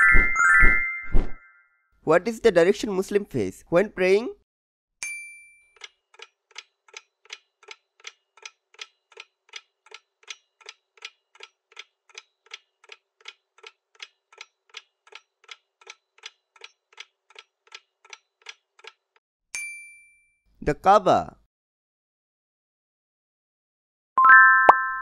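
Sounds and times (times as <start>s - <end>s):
clock ticking: 5.8s - 19.2s.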